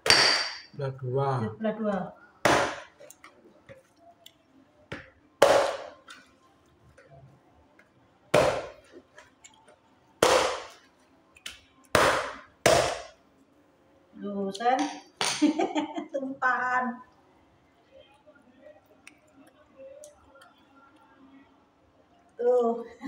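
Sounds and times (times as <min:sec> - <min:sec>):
hatchet chopping coconut: 0:00.0 - 0:00.6, 0:02.4 - 0:02.9, 0:05.4 - 0:05.9, 0:08.3 - 0:08.8, 0:10.2 - 0:10.7, 0:11.9 - 0:13.1.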